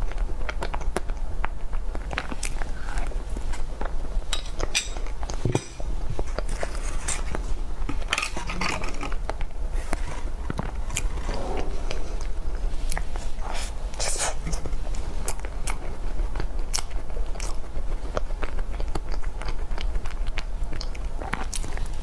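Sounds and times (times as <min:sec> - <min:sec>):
mouth clicks and chewing: 0:00.0 - 0:05.4, 0:12.2 - 0:22.0.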